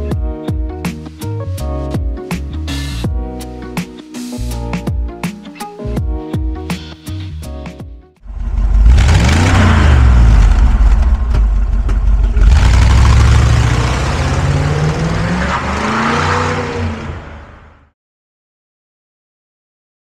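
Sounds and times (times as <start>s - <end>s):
car engine revving: 8.2s - 17.9s.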